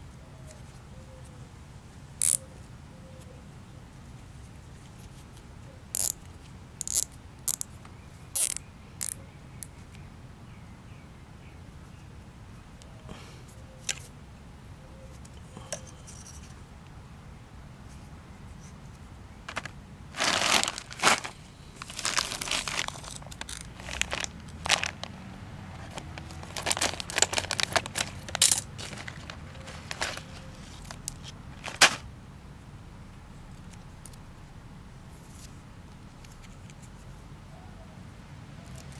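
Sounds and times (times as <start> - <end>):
zip ties clicking: 2.2 - 2.4, 5.9 - 7.7, 8.4 - 9.7
plastic bag crinkling: 19.5 - 25.2, 25.8 - 32.0.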